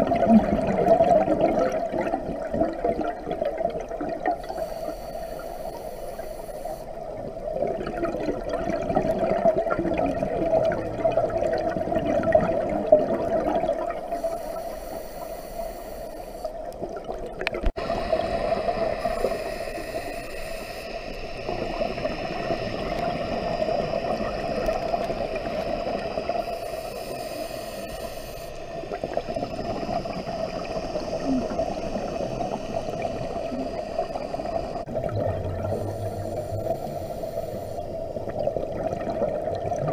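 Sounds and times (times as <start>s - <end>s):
underwater exhaled bubbles gurgling: 0.0s - 39.9s
steady hiss: 4.4s - 7.4s, 14.0s - 16.7s, 17.8s - 34.9s, 35.7s - 38.5s.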